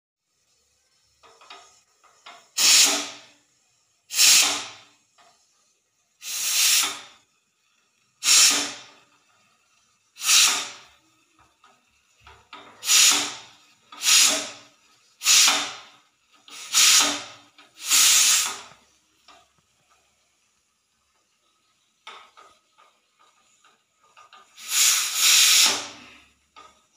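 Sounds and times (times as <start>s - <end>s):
pressure cooker whistle hissing: 2.6s - 3.3s, 4.1s - 4.9s, 6.2s - 7.2s, 8.2s - 9.0s, 10.2s - 11.0s, 12.8s - 18.8s, 24.6s - 26.2s.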